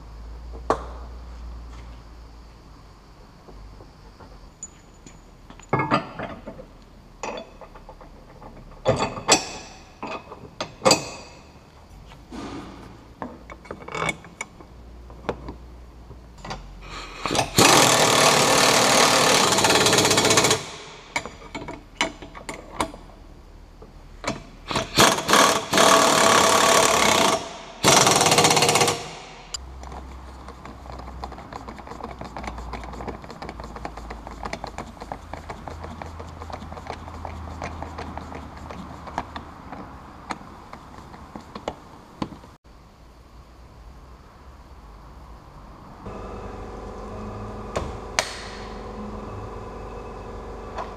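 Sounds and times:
power tool running: 17.3s - 20.9s, 24.7s - 29.5s, 46.1s - 50.9s.

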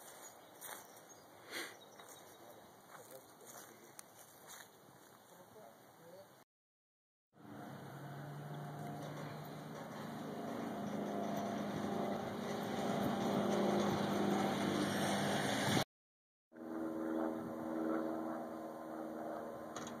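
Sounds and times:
machine engine running: 7.4s - 15.8s.

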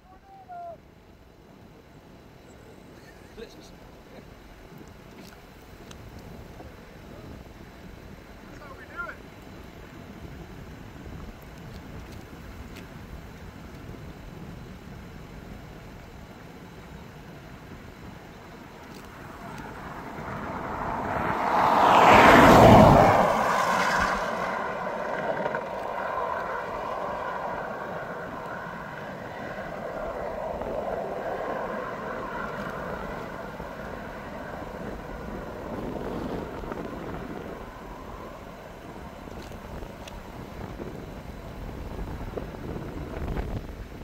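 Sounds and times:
wind noise: 4.6s - 44.0s
vehicle driving past: 19.1s - 39.2s.

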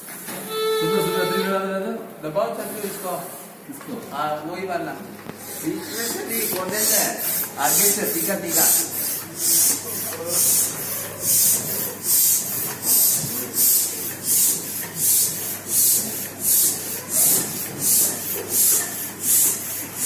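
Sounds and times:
balloon pump air hisses: 0.0s - 1.5s, 5.4s - 20.0s.

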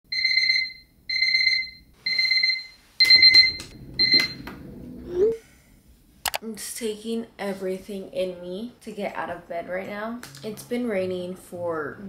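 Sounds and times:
alarm clock beeping: 0.1s - 4.5s
sharp clicks: 6.2s - 6.4s.

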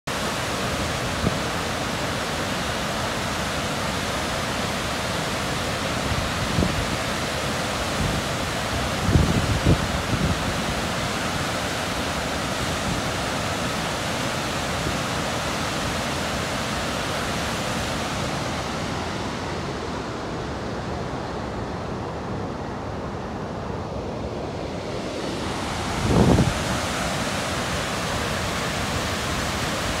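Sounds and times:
waterfall rushing roar: 0.1s - 30.0s
wind buffeting microphone: 8.0s - 10.7s, 24.7s - 28.1s.

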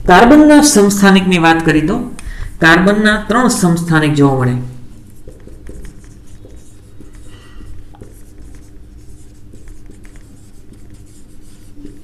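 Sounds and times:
marker pen writing on whiteboard: 5.0s - 12.0s.

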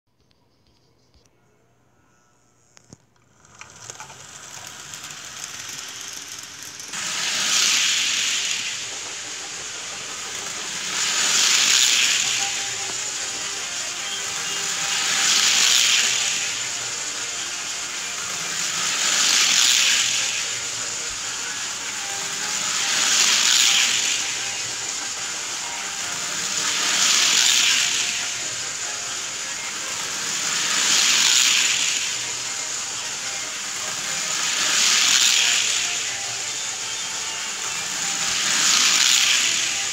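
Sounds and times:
toy train wheels on rails: 2.1s - 39.9s.

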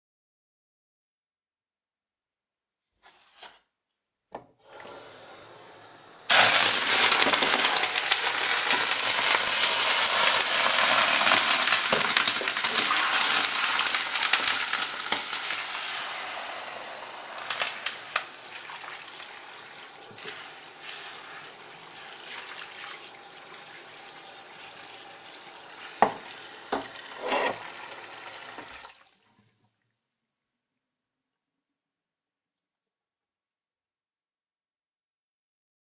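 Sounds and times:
hot oil hissing and spattering: 4.6s - 28.9s
oil sizzling with crackles: 4.6s - 29.5s.

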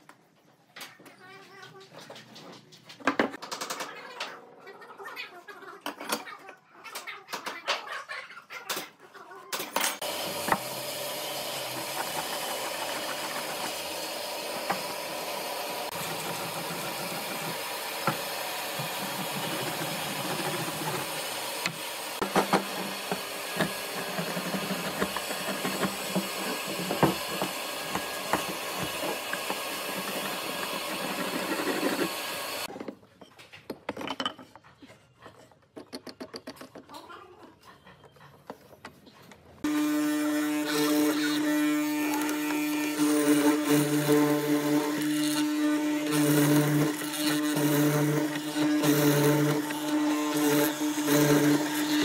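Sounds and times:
marking gauge running along wood: 10.0s - 32.7s, 40.4s - 52.0s
sharp knocks and scrapes: 11.3s - 37.0s.

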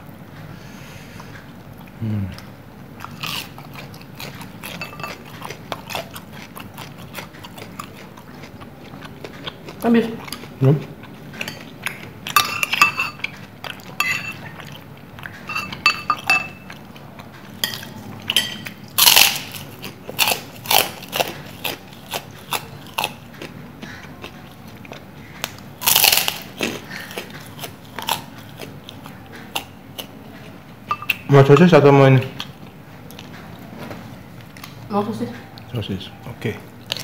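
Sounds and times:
cracker crunching while chewed: 1.2s - 15.4s, 16.2s - 30.6s, 36.7s - 37.0s.

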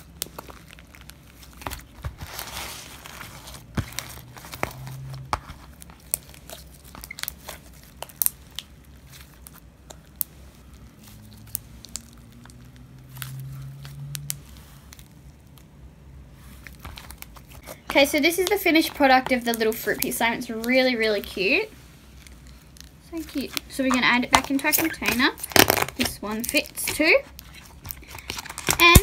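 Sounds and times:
slime clicking and popping by hand: 6.0s - 10.3s.

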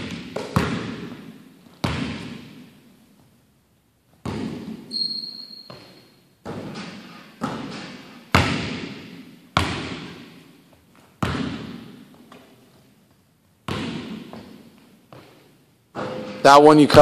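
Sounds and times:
basketball bouncing on wooden floor: 0.0s - 2.7s, 4.2s - 5.0s, 5.6s - 10.4s, 11.0s - 12.6s, 13.6s - 16.2s
high squeak: 4.9s - 6.1s.

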